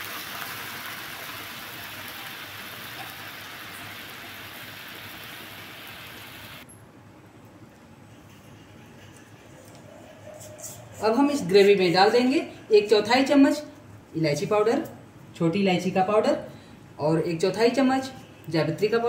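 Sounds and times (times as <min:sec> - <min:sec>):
food sizzling in hot oil: 0:00.0 - 0:06.6.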